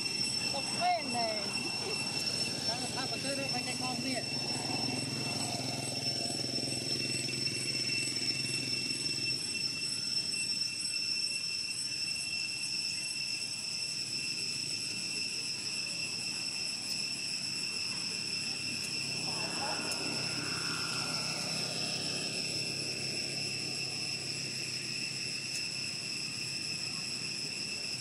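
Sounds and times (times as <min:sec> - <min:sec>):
high-pitched insect drone: 0:00.0 - 0:28.0
distant engine rumble: 0:18.1 - 0:25.2.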